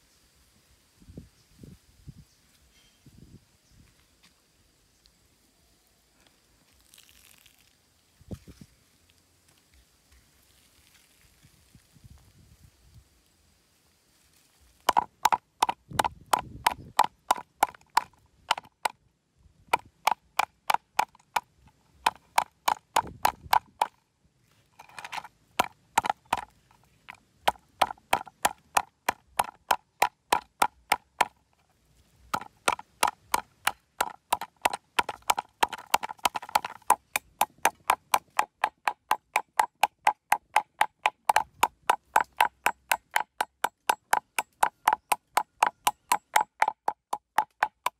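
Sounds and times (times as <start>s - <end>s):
cleaver chopping on wooden board: 14.9s - 19.0s, 25.6s - 26.5s, 27.5s - 31.4s, 32.3s - 47.9s.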